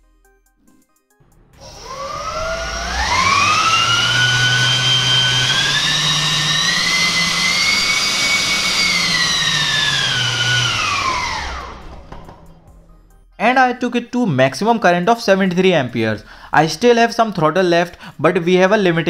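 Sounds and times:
electric ducted fan whining: 0:01.3 - 0:13.0.

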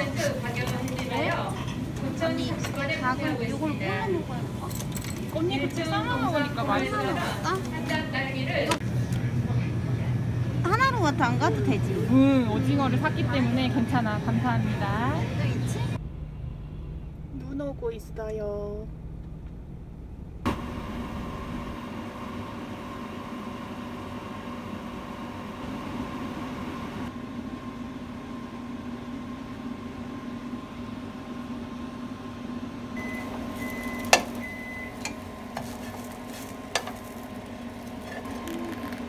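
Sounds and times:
microwave oven humming: 0:00.0 - 0:39.0
microwave short beeps: 0:33.0 - 0:35.2.

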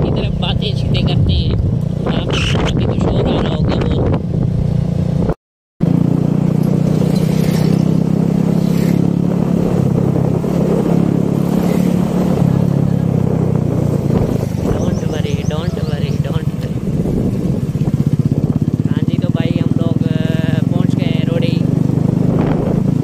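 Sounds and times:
wind noise: 0:00.0 - 0:05.4, 0:07.1 - 0:18.9, 0:21.9 - 0:23.0
road noise: 0:00.0 - 0:23.0
vehicle engine running: 0:00.0 - 0:23.0.

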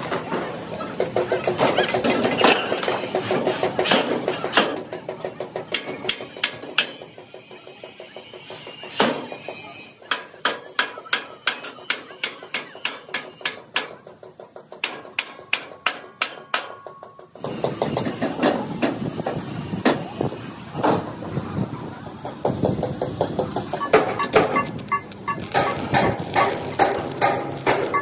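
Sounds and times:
hammer strikes on steel: 0:10.0 - 0:14.1, 0:14.7 - 0:20.0, 0:25.3 - 0:28.0.

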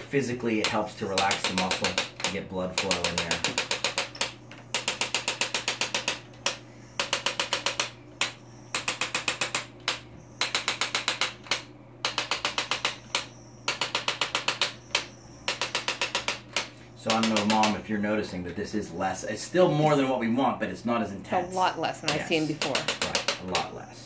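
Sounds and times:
steady low hum: 0:00.0 - 0:24.0
bursts of rapid clicks: 0:00.4 - 0:17.8, 0:22.1 - 0:23.7.

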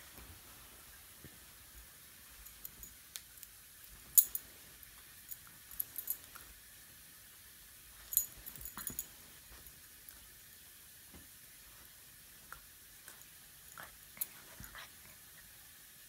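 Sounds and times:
fidget spinner clicks and jingles: 0:08.1 - 0:09.2.

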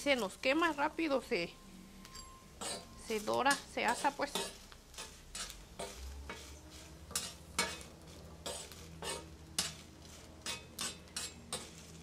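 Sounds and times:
metal spoon scraping a griddle: 0:02.0 - 0:12.0
dry chiles rustling: 0:02.6 - 0:12.0.

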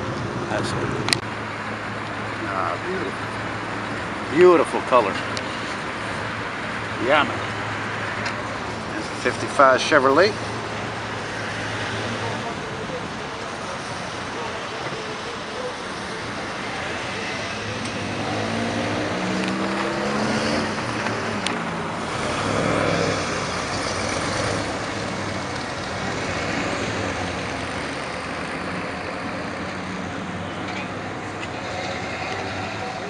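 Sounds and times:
cars driving past: 0:00.0 - 0:33.0
steady traffic noise: 0:00.0 - 0:33.0
car engine accelerating: 0:15.0 - 0:33.0.

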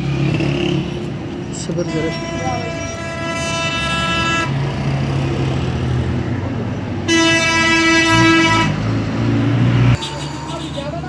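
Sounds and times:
vehicle horn blasts: 0:01.7 - 0:04.6, 0:07.1 - 0:08.8, 0:10.0 - 0:11.0.

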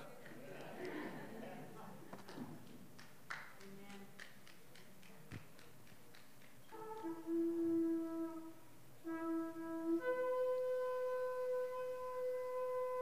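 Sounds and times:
shofar blast: 0:06.8 - 0:13.0.

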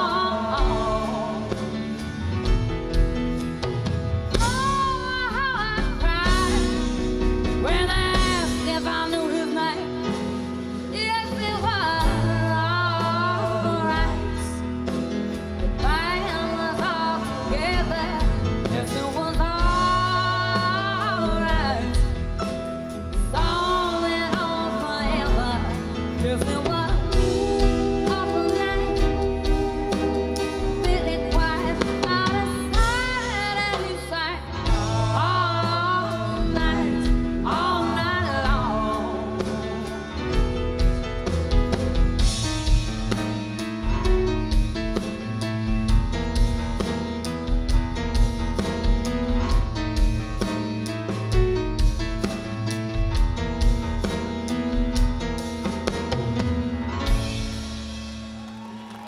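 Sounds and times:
woman singing: 0:00.0 - 0:02.1, 0:04.3 - 0:15.0, 0:15.6 - 0:40.5
drum kit: 0:00.0 - 0:59.0.

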